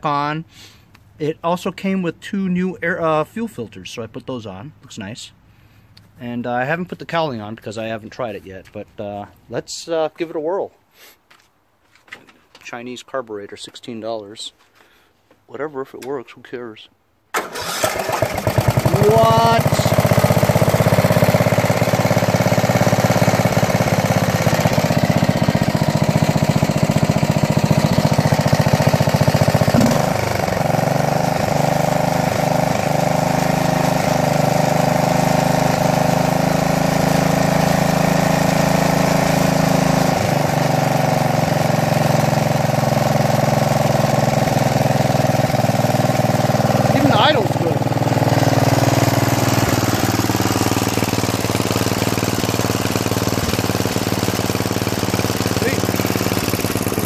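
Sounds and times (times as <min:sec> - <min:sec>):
small engine running: 0:17.4 - 0:57.0.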